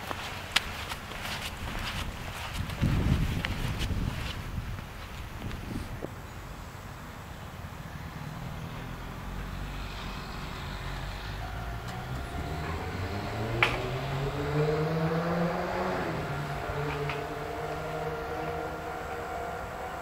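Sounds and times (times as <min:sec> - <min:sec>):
electric train motors whining: 0:09.3 - 0:20.0.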